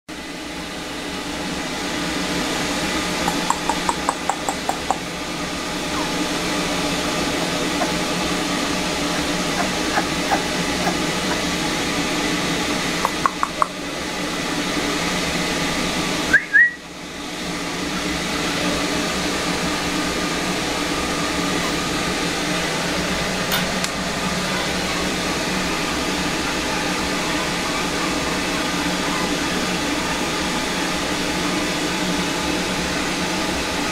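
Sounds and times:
quick clicks: 0:03.2 - 0:05.0.

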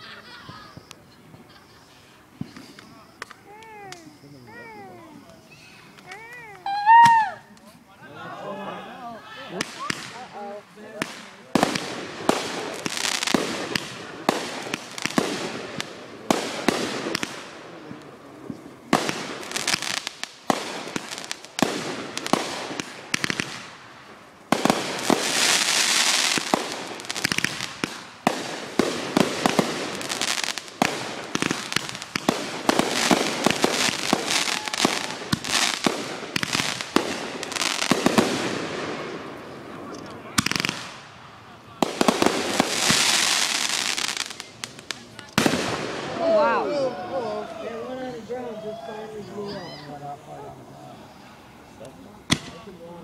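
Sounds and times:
fireworks bangs and crackles: 0:00.0 - 0:07.2, 0:09.3 - 0:48.4, 0:51.1 - 0:53.0
hissing crackle: 0:09.3 - 0:46.6.

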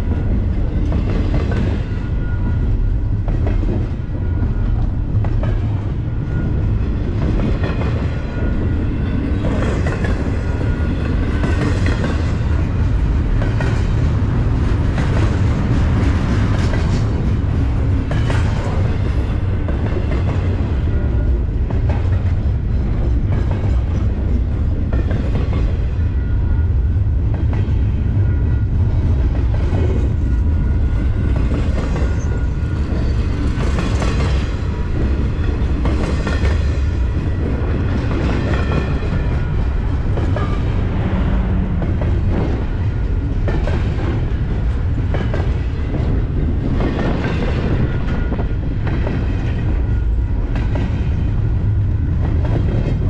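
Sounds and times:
train wheels rumbling on rail: 0:00.0 - 0:53.0.

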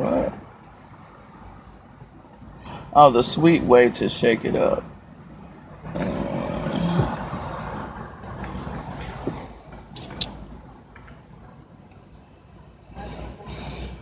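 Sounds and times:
vehicle rushing by: 0:05.8 - 0:10.8.

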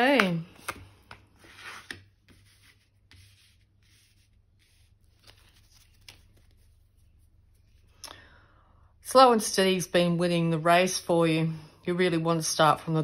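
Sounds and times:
cards rubbing on cloth: 0:00.5 - 0:07.9.

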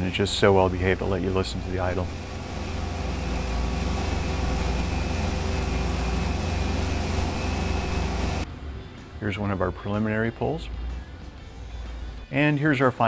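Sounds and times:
car engine idling: 0:00.0 - 0:08.4.

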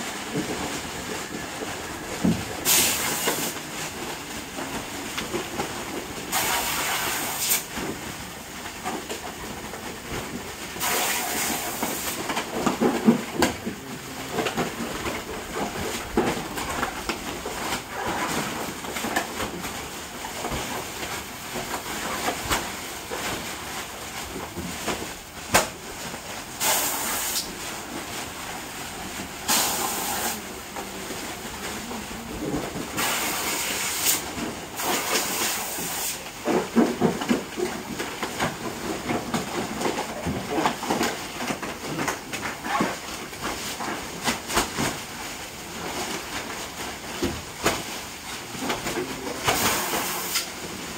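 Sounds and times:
plastic bags rustling and crinkling: 0:00.0 - 0:50.9
gas hissing into bags: 0:02.6 - 0:03.7, 0:06.2 - 0:07.7, 0:10.8 - 0:12.5, 0:26.4 - 0:31.2, 0:32.9 - 0:36.4, 0:49.5 - 0:50.6.

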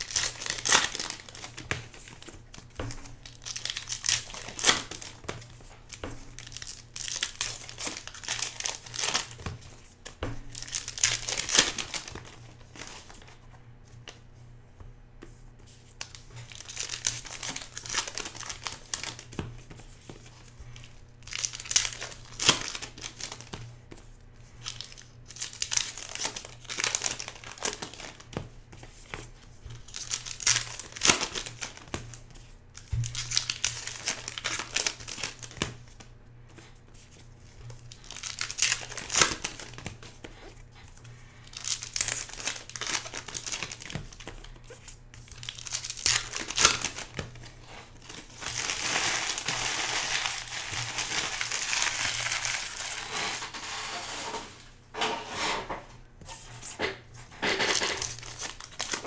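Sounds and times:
foil wrappers tearing and crinkling: 0:00.0 - 0:02.4, 0:03.0 - 0:05.3, 0:06.3 - 0:09.4, 0:10.5 - 0:13.2, 0:16.0 - 0:19.3, 0:20.9 - 0:23.5, 0:24.6 - 0:28.3, 0:29.7 - 0:32.2, 0:32.8 - 0:35.6, 0:37.9 - 0:40.1, 0:41.4 - 0:54.2, 0:57.6 - 0:59.0.

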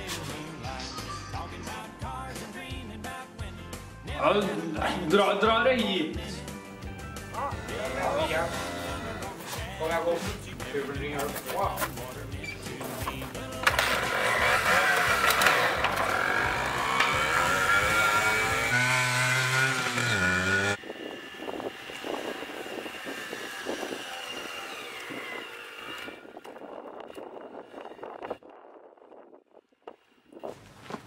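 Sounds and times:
dirt bike engine revving: 0:06.9 - 0:10.0, 0:12.6 - 0:26.4.

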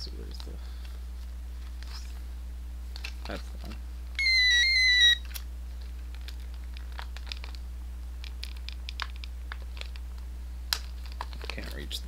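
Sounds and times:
low electrical hum: 0:00.0 - 0:12.0
plastic packaging crinkling: 0:05.2 - 0:07.6.

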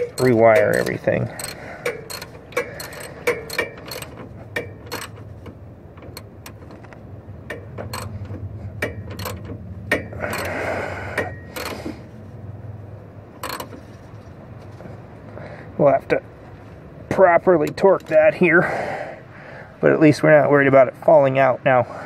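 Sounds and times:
hand ratchet clicking: 0:00.0 - 0:12.2, 0:13.4 - 0:14.2
steady low hum: 0:00.0 - 0:20.0.

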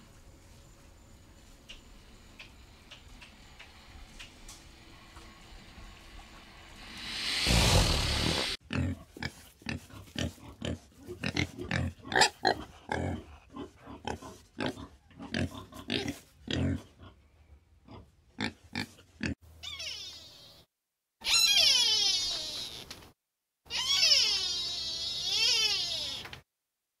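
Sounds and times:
pig grunting: 0:07.2 - 0:17.0.

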